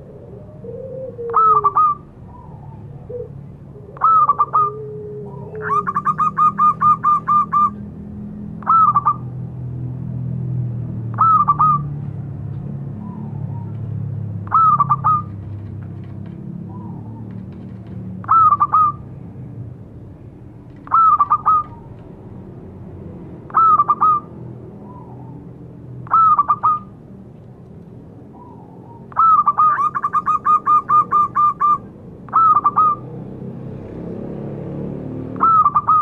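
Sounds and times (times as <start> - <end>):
dove cooing: 0.0 - 7.8, 8.6 - 9.3, 11.1 - 11.9, 14.4 - 15.5, 18.2 - 19.0, 20.8 - 22.0, 23.5 - 25.4, 26.0 - 27.0, 28.4 - 33.0, 35.4 - 36.0
low short bird calls: 20.8 - 21.9.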